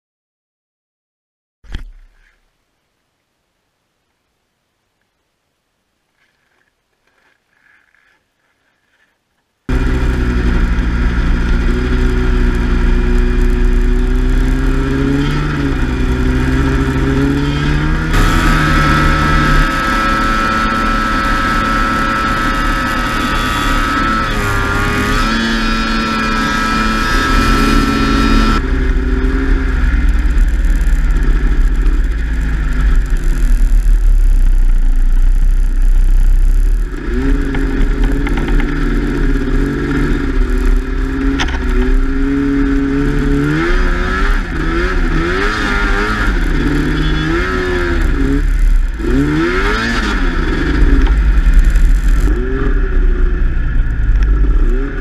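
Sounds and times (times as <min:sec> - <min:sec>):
snowmobile engine: 0:09.7 - 0:55.0.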